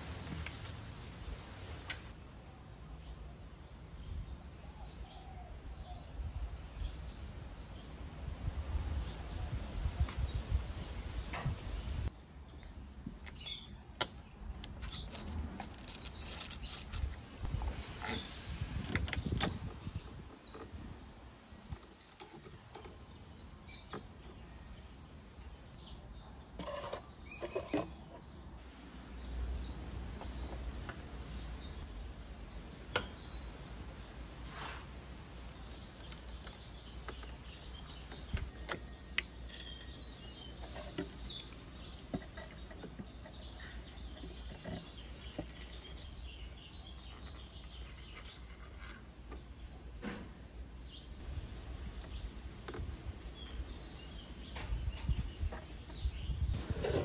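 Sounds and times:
ratchet clicking: 14.7s - 17.1s.

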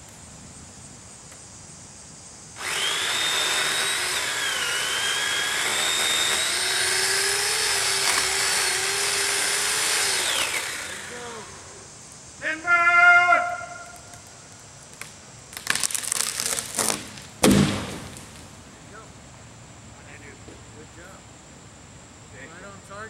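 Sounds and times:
chainsaw cutting tree trunk: 2.6s - 11.8s, 15.5s - 18.4s.

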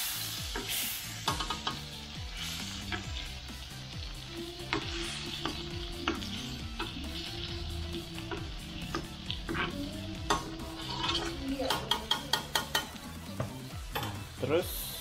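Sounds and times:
butter sizzling in a wok: 0.0s - 15.0s
metal spoon scraping a pan: 0.5s - 3.3s, 4.6s - 13.0s.

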